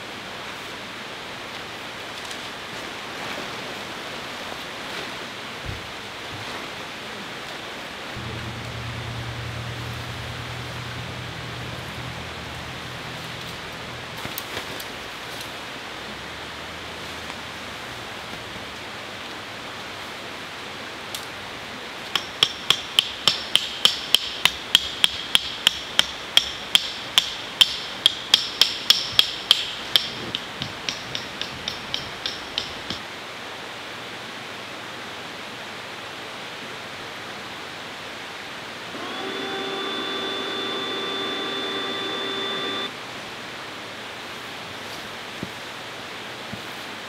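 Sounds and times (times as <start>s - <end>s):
hammer striking tent stake: 22.2s - 33.0s.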